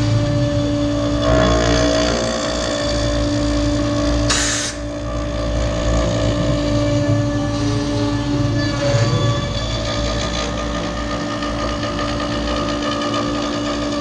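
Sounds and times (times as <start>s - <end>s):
low rumble: 0.0s - 14.0s
router spindle whining: 0.0s - 14.0s
burst of hiss: 4.3s - 4.8s.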